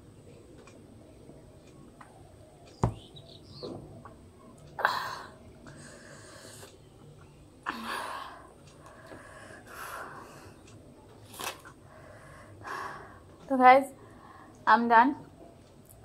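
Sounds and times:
sharp knock: 2.8s - 3.8s.

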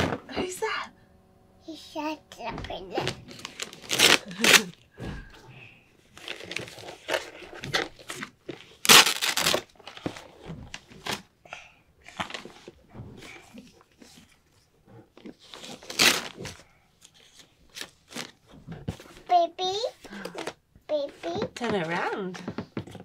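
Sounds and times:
wrapping paper crinkling and tearing: 3.0s - 4.8s, 6.1s - 10.3s, 15.4s - 16.6s, 17.2s - 18.4s.

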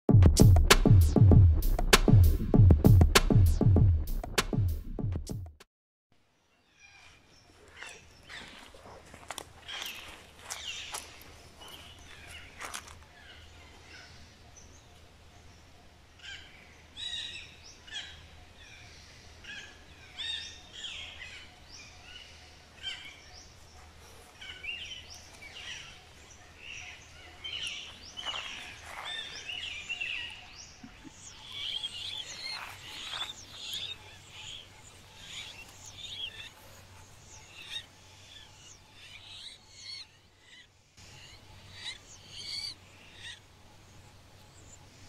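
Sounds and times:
parakeets calling harshly: 38.5s - 43.4s.

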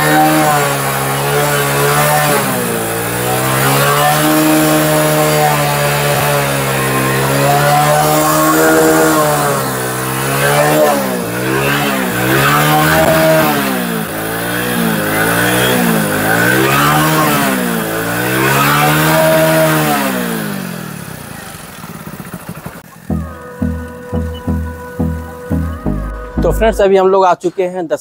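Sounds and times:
motorcycle engine revving: 0.0s - 26.9s.

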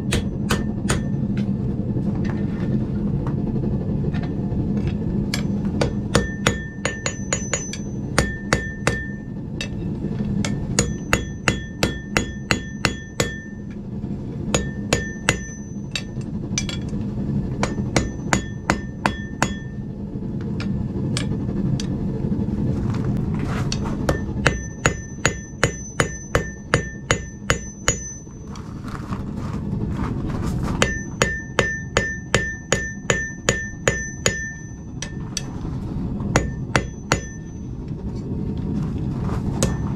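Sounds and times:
hammer striking hot steel on anvil: 0.0s - 1.5s, 4.2s - 13.8s, 14.5s - 17.0s, 17.6s - 19.9s, 20.5s - 21.9s, 23.7s - 28.4s, 30.8s - 35.6s, 36.3s - 37.7s, 39.6s - 39.9s
steady low rumble: 0.0s - 39.9s
high ring from anvil: 5.3s - 9.8s, 10.4s - 13.8s, 14.5s - 16.9s, 17.6s - 19.8s, 24.1s - 28.3s, 30.8s - 35.5s, 36.4s - 37.8s, 39.6s - 39.9s.

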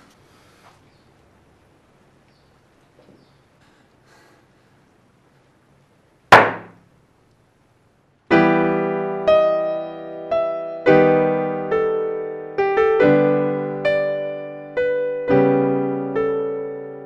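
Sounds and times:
loud hit: 6.3s - 6.8s
slow piano music: 8.3s - 17.0s.

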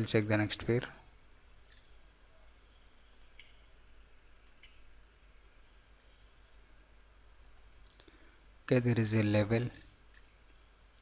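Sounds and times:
faint computer mouse clicks: 1.7s - 1.9s, 3.1s - 3.6s, 4.3s - 4.8s.

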